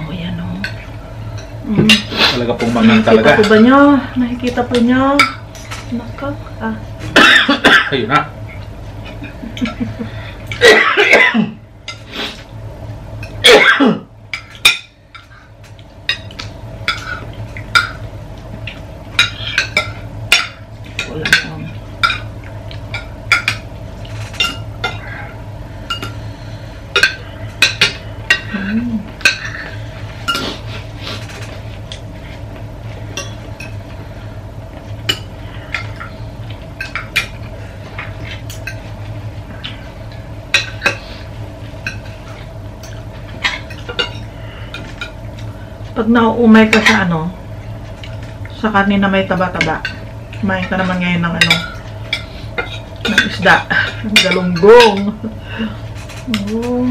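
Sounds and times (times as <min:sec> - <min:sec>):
steady low hum: 0:00.0 - 0:56.9
person coughing: 0:07.2 - 0:08.0, 0:10.6 - 0:11.6, 0:13.4 - 0:14.1.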